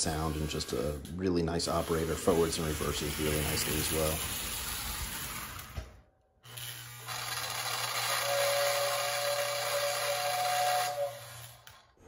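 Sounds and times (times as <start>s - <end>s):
train whistle blowing: 8.0s - 11.6s.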